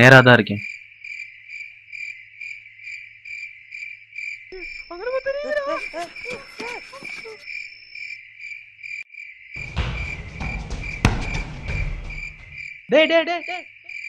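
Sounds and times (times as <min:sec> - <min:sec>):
crickets chirping: 0:00.0 - 0:14.0
sharp knock: 0:09.6 - 0:12.7.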